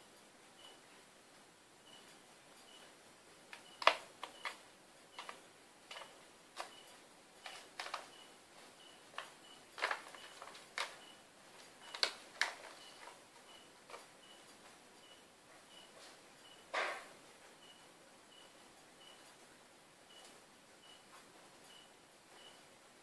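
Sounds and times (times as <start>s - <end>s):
plastic pouch crinkling: 9.2s - 11.0s.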